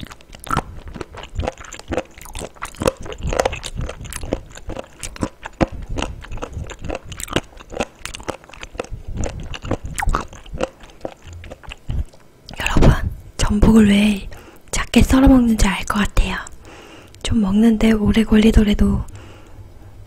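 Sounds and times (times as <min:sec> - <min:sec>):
chewing crunches and clicks: 0:00.0 - 0:12.8.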